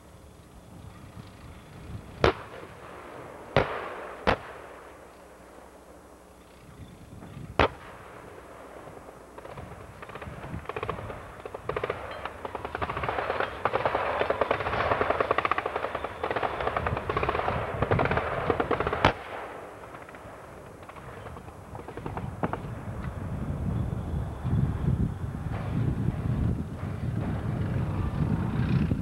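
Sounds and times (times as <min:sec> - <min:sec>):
machine-gun fire: 0:02.2 - 0:04.8, 0:09.4 - 0:22.7.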